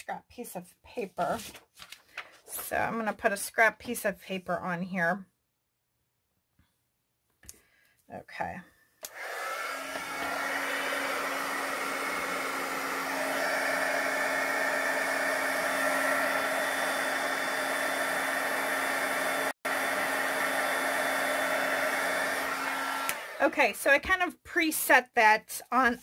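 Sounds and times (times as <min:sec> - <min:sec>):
heat gun blowing: 0:09.0 - 0:23.5.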